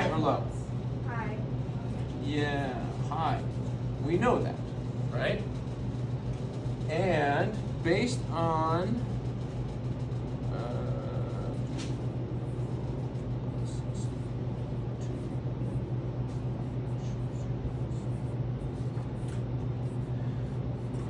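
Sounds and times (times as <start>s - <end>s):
low room hum: 0.0s - 21.0s
marker writing on a whiteboard: 11.6s - 21.0s.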